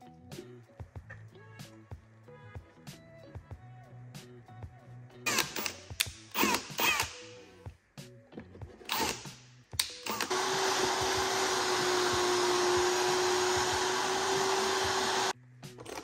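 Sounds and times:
shop vacuum running: 0:10.1 - 0:15.4.

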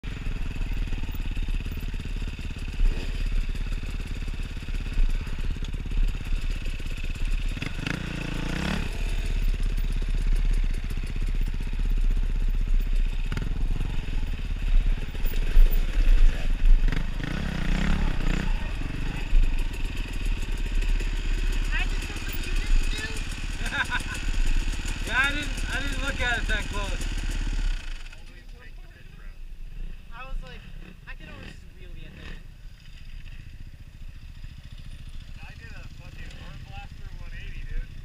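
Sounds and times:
dirt bike engine running: 0:00.0 - 0:38.0
other dirt bikes running: 0:00.0 - 0:38.0.

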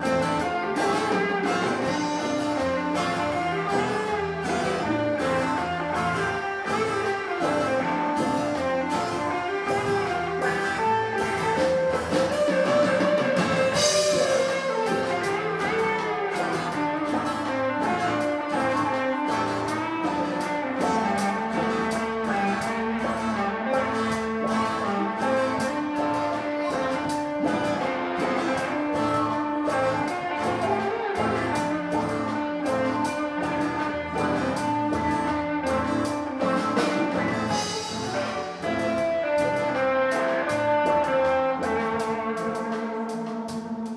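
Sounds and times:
bass guitar: 0:00.0 - 0:43.9
drum-kit beat: 0:00.0 - 0:43.9
electric guitars: 0:00.0 - 0:43.9.

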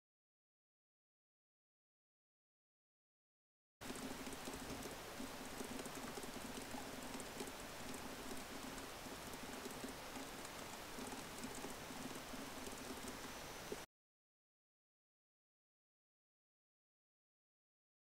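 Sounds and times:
computer keyboard typing: 0:03.8 - 0:13.3
steady hiss: 0:03.8 - 0:13.8.

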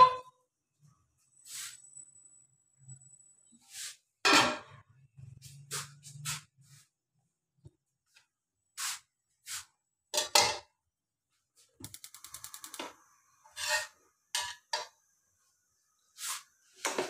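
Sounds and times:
pan and utensils knocking: 0:10.2 - 0:10.7, 0:13.6 - 0:15.0
rapid clicks: 0:11.8 - 0:12.8.

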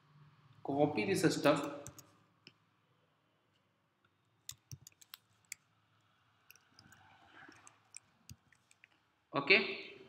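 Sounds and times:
keyboard and mouse clicks: 0:01.6 - 0:02.6, 0:04.4 - 0:05.7, 0:06.5 - 0:09.0.

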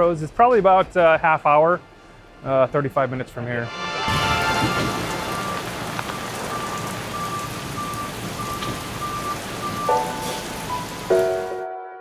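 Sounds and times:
rain falling on concrete: 0:04.1 - 0:11.5.

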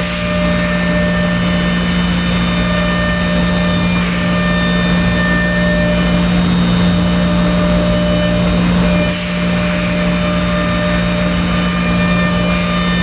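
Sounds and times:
machine whine: 0:00.0 - 0:13.0
router spindle cutting wood: 0:00.0 - 0:13.0.

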